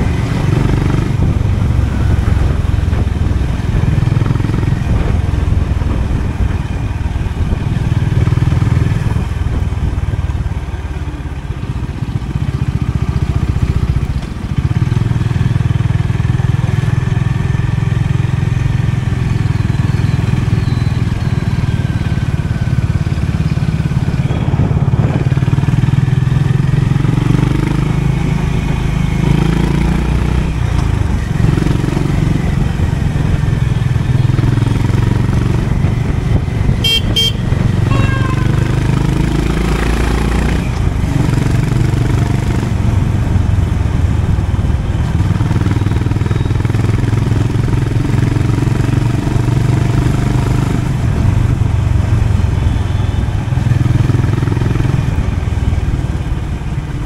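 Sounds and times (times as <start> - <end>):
motorcycle engine while riding: 0.0 - 57.0.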